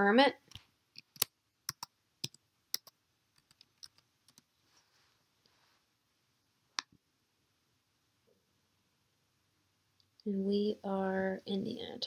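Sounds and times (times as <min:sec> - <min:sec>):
computer keyboard keys clicking: 0:01.1 - 0:04.4.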